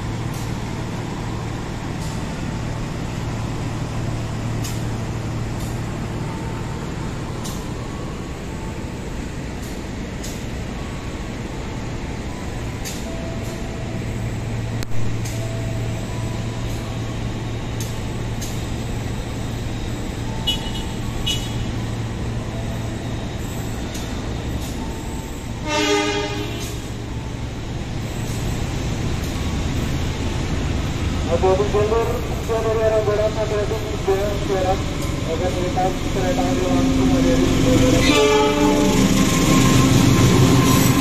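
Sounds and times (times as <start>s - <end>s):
train horn blast: 25.6s - 26.9s, 37.7s - 41.0s.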